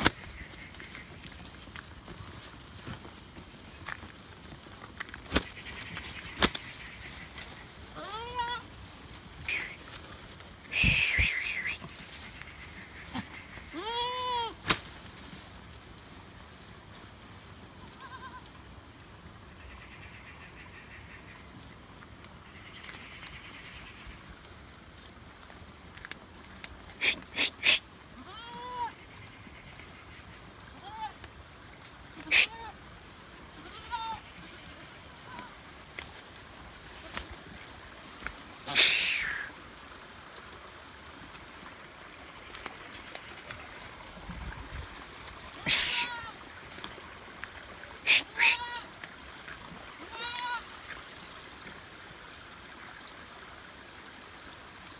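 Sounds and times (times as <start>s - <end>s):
goats bleating: 5.6s - 8.8s, 12.7s - 14.6s, 17.8s - 18.5s, 27.0s - 29.4s, 32.0s - 32.8s, 33.4s - 35.6s, 45.6s - 46.8s, 48.0s - 49.1s, 50.0s - 50.7s.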